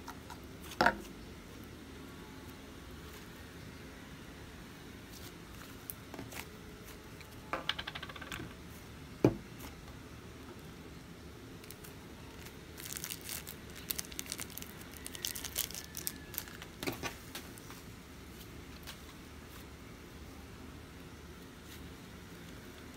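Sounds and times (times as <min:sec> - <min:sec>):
slime crackling and popping: 0:11.6 - 0:16.8.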